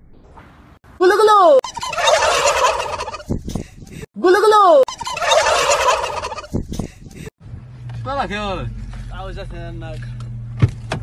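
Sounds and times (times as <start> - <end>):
rising and falling call: 1.6 - 3.2, 4.9 - 6.5
turkeys gobbling in chorus: 1.7 - 3.3, 4.9 - 6.5.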